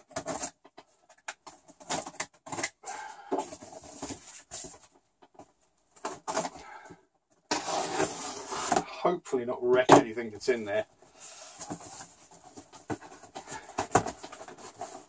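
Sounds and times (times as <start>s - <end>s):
cardboard box scraping and rustling: 7.5s - 8.9s.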